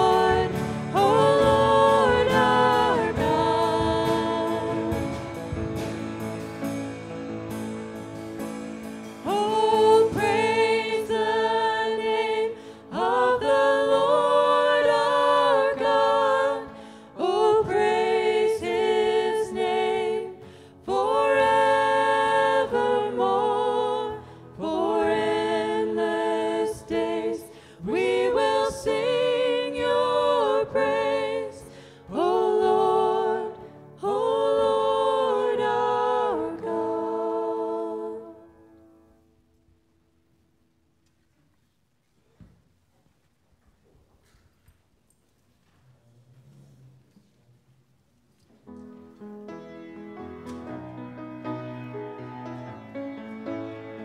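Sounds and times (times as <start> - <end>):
woman singing: 0.0 - 5.3, 9.2 - 38.5.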